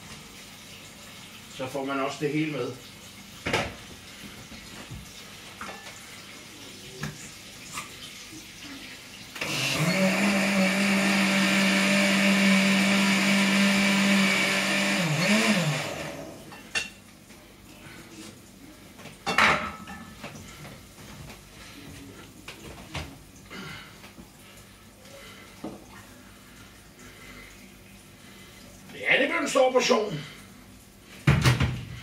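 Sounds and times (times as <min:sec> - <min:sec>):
blender motor running: 0:09.4 - 0:16.5.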